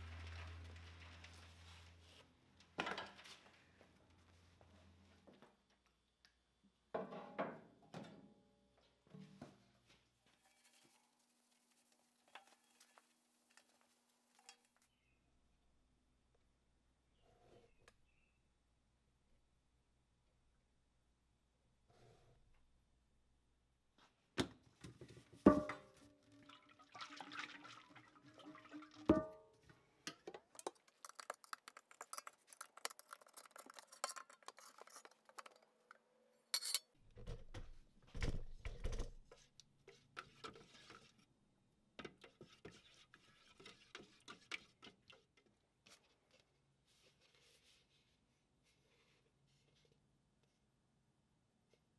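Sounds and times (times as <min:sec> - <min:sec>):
metal paint can knocks: 0:25.5 - 0:25.9
small clicks and knocks: 0:30.1 - 0:36.0.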